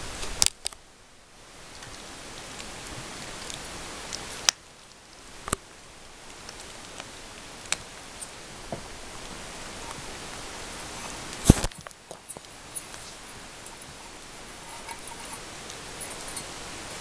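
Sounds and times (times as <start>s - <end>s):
steady hiss: 0.0s - 17.0s.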